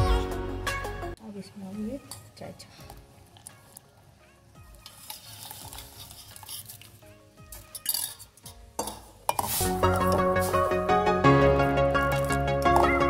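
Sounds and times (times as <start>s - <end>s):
background music: 0.0s - 13.0s
ladle stirring and clinking on pot: 4.8s - 10.8s
tea pouring through a strainer: 4.9s - 7.0s.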